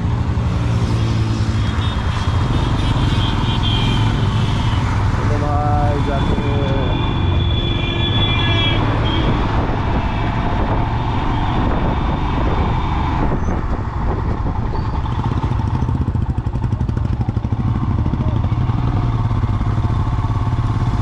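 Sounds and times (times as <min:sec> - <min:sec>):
road and wind noise: 0:00.0 - 0:21.0
motorcycle engine running: 0:13.8 - 0:21.0.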